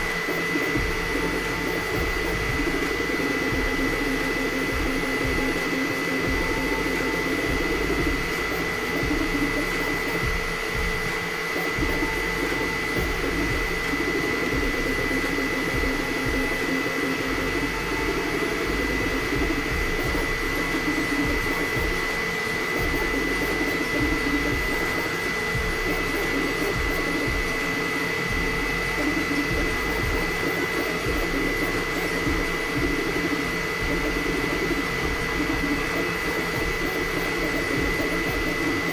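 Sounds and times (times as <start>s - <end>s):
cooling fans whining: 0.0s - 38.9s
stepper motors humming: 0.0s - 38.9s.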